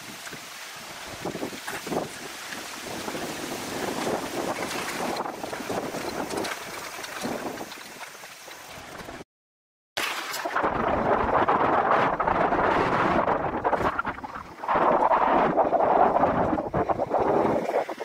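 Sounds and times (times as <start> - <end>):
wind rushing over microphone: 0.0 - 7.9, 10.4 - 18.0
bicycle rumbling over bumpy track: 0.0 - 9.2.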